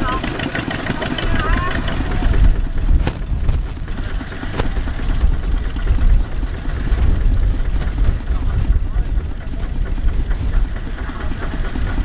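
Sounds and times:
tractor engine rumbling: 0.0 - 12.0.

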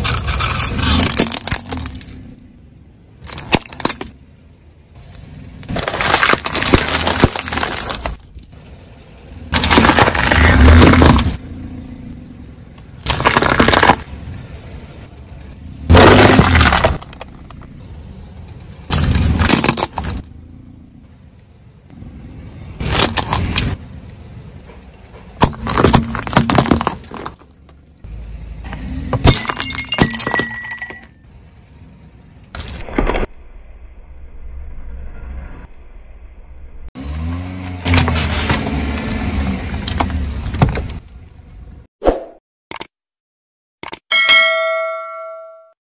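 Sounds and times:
tyre crushing objects: 0.0 - 2.2, 5.7 - 8.4, 9.5 - 11.4, 13.0 - 14.2, 15.9 - 17.6, 18.9 - 20.3, 25.4 - 27.6.

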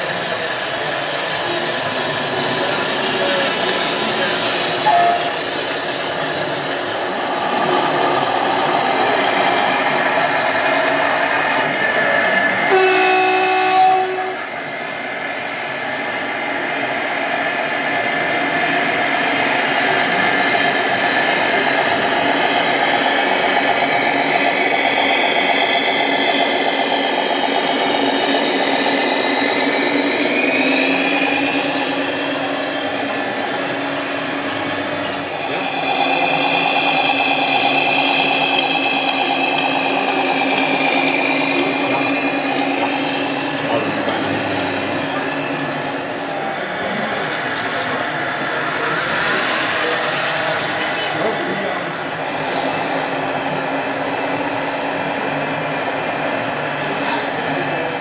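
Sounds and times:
truck horn blast: 12.7 - 14.4.

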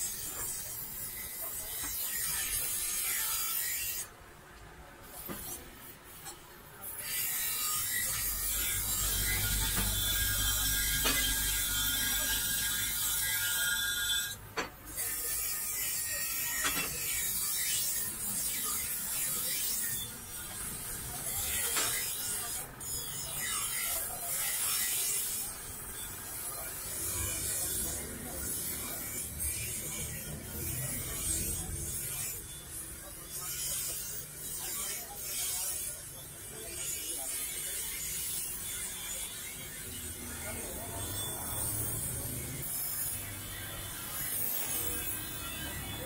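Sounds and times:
grinder wheel grinding knife blade: 0.0 - 4.2, 5.0 - 46.0.

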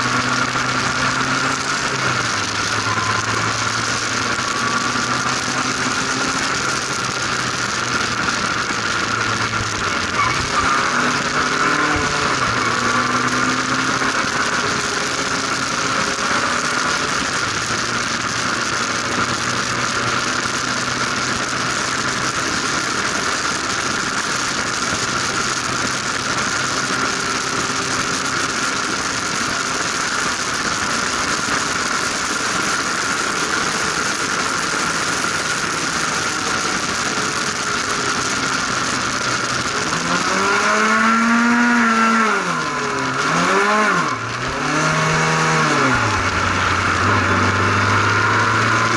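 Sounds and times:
racing car engine revving: 0.0 - 48.9
wind and road noise: 0.0 - 48.9.

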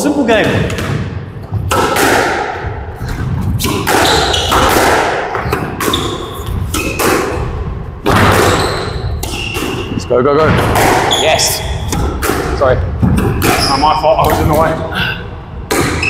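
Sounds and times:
shoes squeaking on court floor: 3.6 - 4.6, 5.4 - 7.5, 8.4 - 10.0, 11.1 - 11.9.

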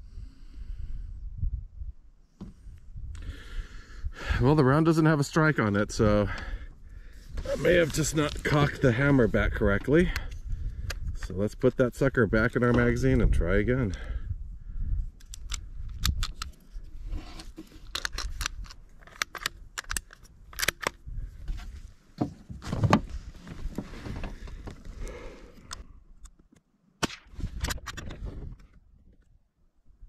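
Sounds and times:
rifle bolt clicks and rattles: 15.2 - 16.7, 17.4 - 21.0, 27.6 - 28.8.

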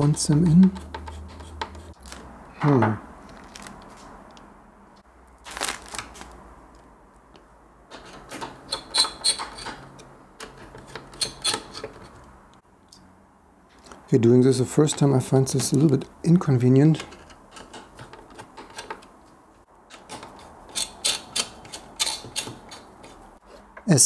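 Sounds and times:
plastic bag crinkling: 3.3 - 3.9, 5.4 - 6.4.

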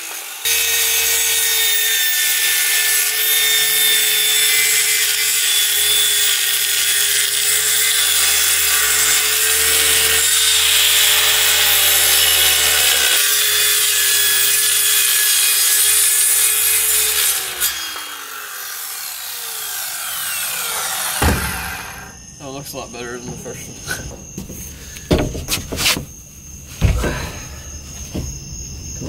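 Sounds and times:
saw blade spinning down: 0.0 - 22.2
circular saw cutting wood: 0.0 - 23.1.

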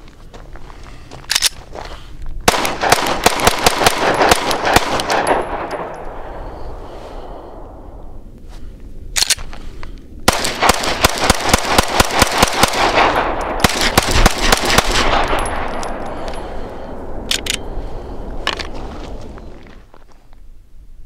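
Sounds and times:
pistol shots rapid-fire: 2.5 - 5.9, 10.3 - 15.8.

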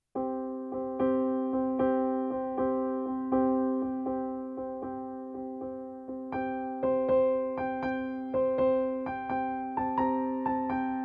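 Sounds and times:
piano playing repeated notes: 0.1 - 11.0.

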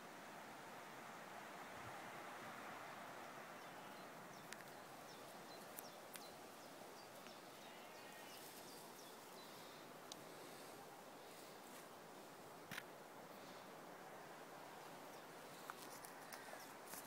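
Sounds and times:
faint outdoor hiss: 0.0 - 17.0
faint sharp clicks: 4.4 - 4.8, 5.6 - 6.3, 10.0 - 10.3.

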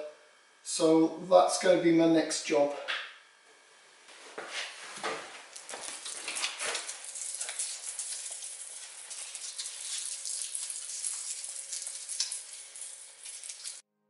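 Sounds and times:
foil pouch crinkling: 5.6 - 13.8.

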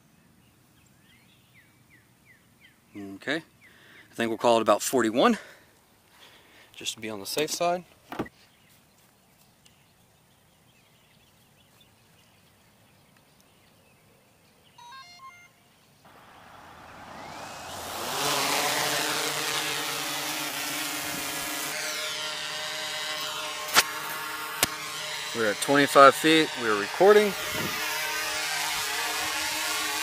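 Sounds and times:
short electronic beeps: 14.8 - 15.6
drone motors buzzing hum: 16.1 - 30.0.

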